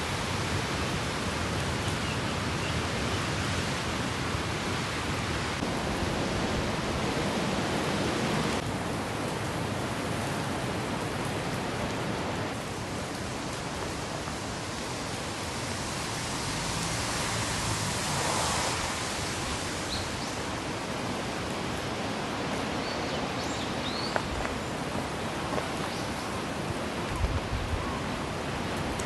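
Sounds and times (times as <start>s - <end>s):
rain hissing: 0.0s - 29.0s
strong wind: 0.0s - 29.0s.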